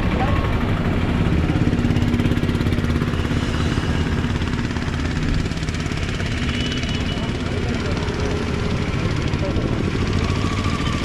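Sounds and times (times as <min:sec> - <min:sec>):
traffic rumble: 0:00.0 - 0:11.0
vehicle engine humming: 0:00.0 - 0:11.0.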